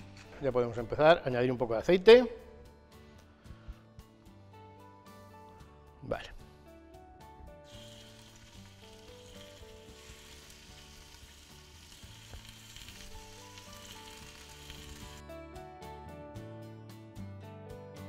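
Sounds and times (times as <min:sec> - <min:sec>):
meat sizzling in hot oil: 0:07.6 - 0:15.2.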